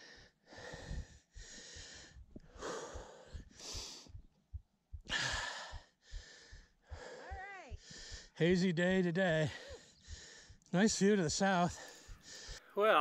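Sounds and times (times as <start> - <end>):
person breathing hard: 0.0 - 4.3, 5.0 - 8.4, 9.4 - 10.7, 11.7 - 12.8.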